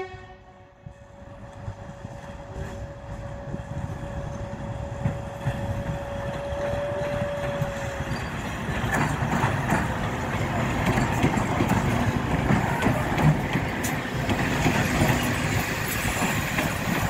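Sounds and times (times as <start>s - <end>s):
diesel locomotive engines rumbling: 0.0s - 17.0s
wheel clatter over rails: 5.0s - 17.0s.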